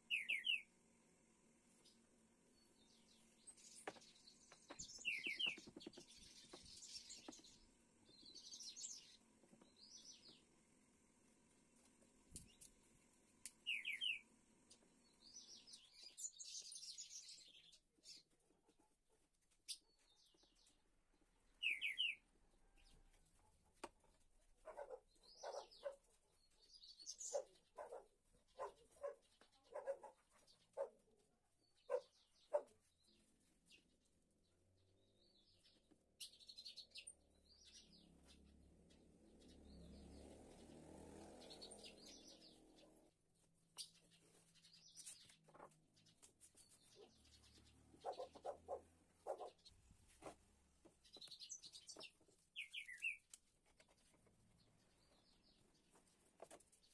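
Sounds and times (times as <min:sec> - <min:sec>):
faint bird chirps: 0:00.0 - 0:00.7, 0:02.6 - 0:10.4, 0:13.6 - 0:14.2, 0:21.6 - 0:23.0, 0:51.1 - 0:53.3.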